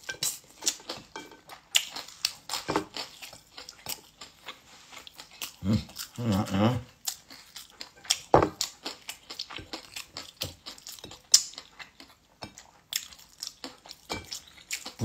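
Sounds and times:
person chewing: 0.0 - 15.0
cutlery clinking on a plate: 14.0 - 14.5.

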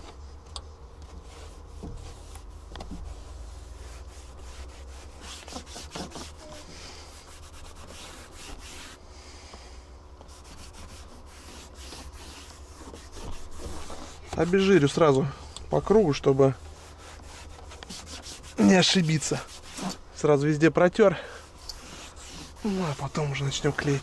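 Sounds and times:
steady low hum: 0.0 - 24.0
rag rubbing a window frame: 1.1 - 9.0, 10.3 - 20.5, 21.2 - 24.0.

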